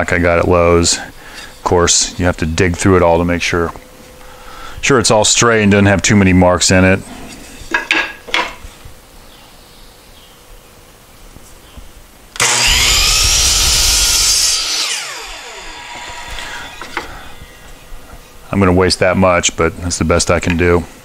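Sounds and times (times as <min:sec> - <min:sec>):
saw blade winding down: 0:12.4 - 0:17.8
miter saw cutting wood: 0:12.4 - 0:18.1.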